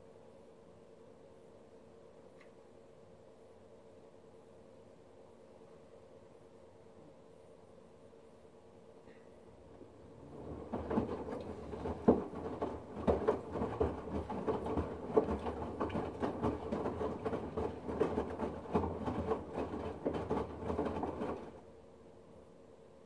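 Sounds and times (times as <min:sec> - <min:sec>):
washing machine drum tumbling: 0:09.8 - 0:21.6
water sloshing and splashing: 0:10.2 - 0:21.6.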